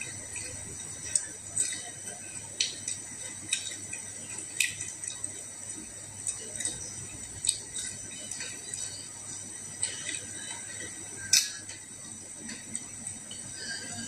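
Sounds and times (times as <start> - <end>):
chewing mouth sounds: 0.0 - 9.1.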